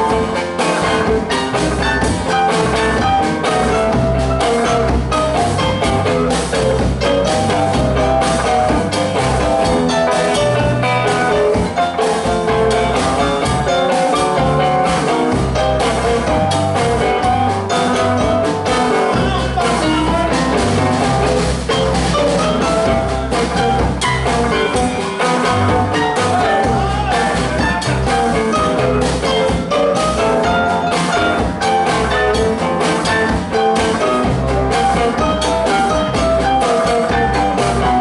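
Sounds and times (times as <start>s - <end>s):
acoustic guitar: 0.0s - 38.0s
drum kit: 0.0s - 38.0s
keyboard piano: 0.0s - 38.0s.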